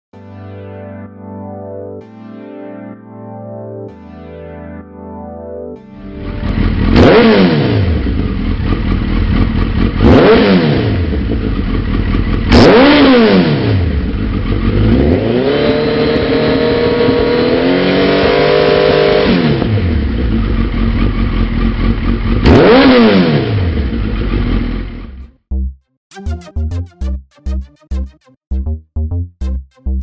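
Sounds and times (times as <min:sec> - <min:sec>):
motorcycle engine revving: 0:06.2 - 0:25.4.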